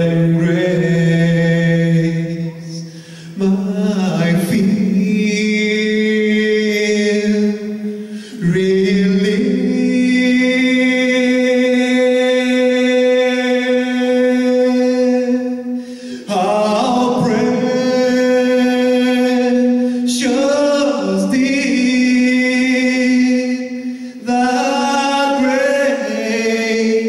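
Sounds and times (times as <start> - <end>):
man singing into a microphone: 0.0 - 27.0
choir singing: 16.2 - 27.0.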